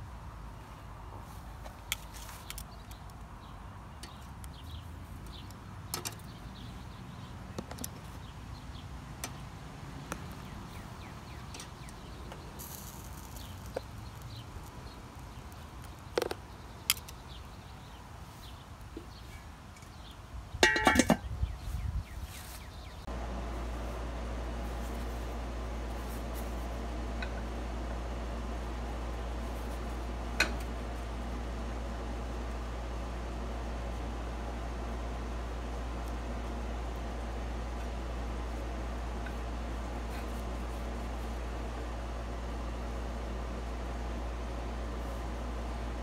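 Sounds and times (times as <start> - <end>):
utensil clicks on grill grate: 5.2 - 6.3, 11.5 - 17.4
metal grill lid clattering: 20.6 - 21.2.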